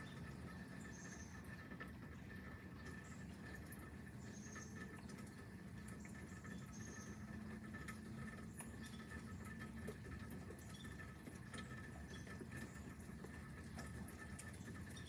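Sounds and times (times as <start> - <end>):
light dripping and patter: 0.0 - 15.0.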